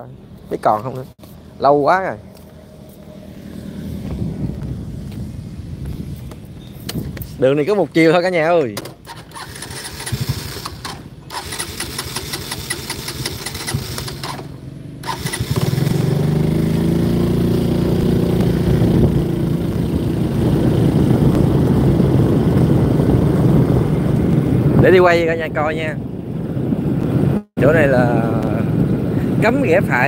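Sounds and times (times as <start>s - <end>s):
motorbike engine revving: 9.0s - 24.7s.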